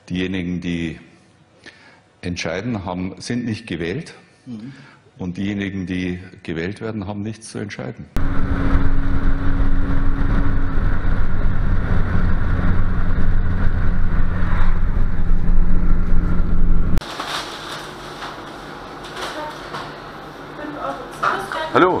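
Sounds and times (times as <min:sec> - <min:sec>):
vehicle engine cruising: 0:08.2 - 0:17.0
wind and road noise: 0:08.2 - 0:17.0.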